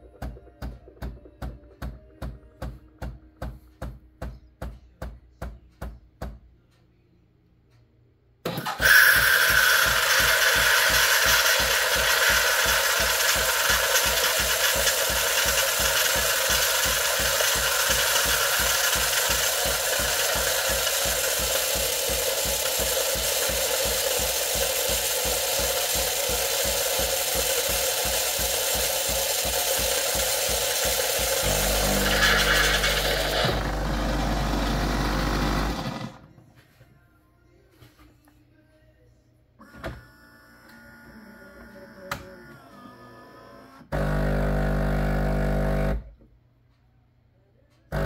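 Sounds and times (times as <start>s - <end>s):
pump pulsing: 8.5s - 36.2s, 43.9s - 46.0s
steam hissing through milk: 8.8s - 33.3s.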